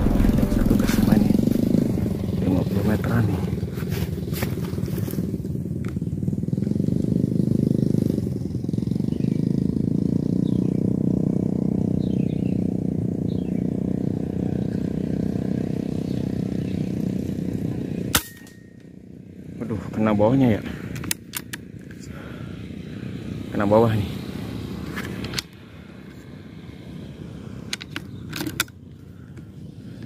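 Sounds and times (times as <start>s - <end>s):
air rifle shot: 0.0s - 2.5s
engine running: 0.0s - 30.0s.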